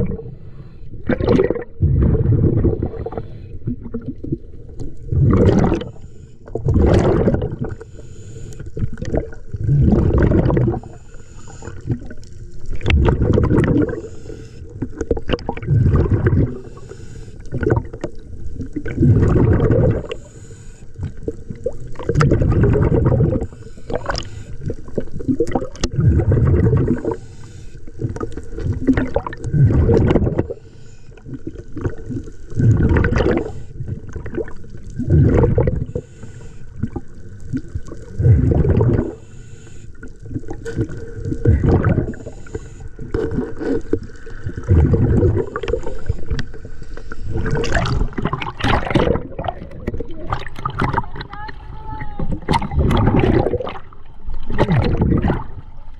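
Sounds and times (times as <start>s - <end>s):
bubbles gurgling: 0.0s - 0.4s, 1.0s - 8.0s, 8.7s - 16.8s, 17.4s - 20.3s, 21.0s - 27.2s, 27.8s - 30.6s, 31.2s - 36.0s, 36.7s - 39.2s, 39.9s - 55.9s
diver breathing through regulator: 0.1s - 1.1s, 2.6s - 3.8s, 5.3s - 8.8s, 9.7s - 12.2s, 13.6s - 18.1s, 19.0s - 21.4s, 22.8s - 25.2s, 25.8s - 28.2s, 29.4s - 31.5s, 33.2s - 34.1s, 35.2s - 37.2s, 38.5s - 40.2s, 40.9s - 48.2s.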